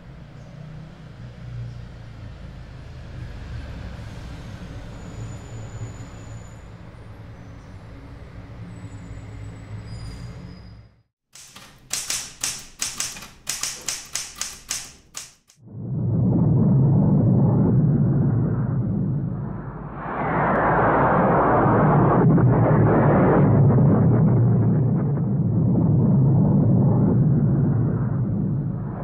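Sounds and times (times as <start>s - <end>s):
typewriter keys clicking: 11.4s - 15.6s.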